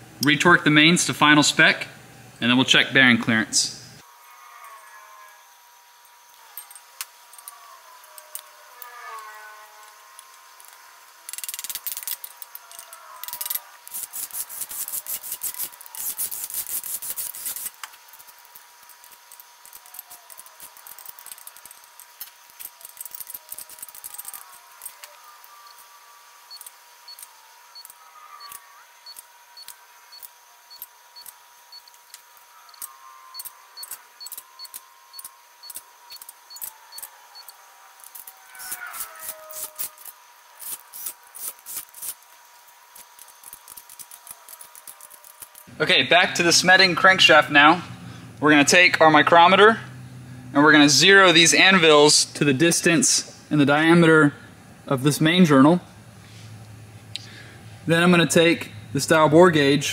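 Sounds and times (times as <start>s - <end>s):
torque wrench ratchet clicking: 10.2s - 25.9s, 26.5s - 42.4s, 43.0s - 45.7s.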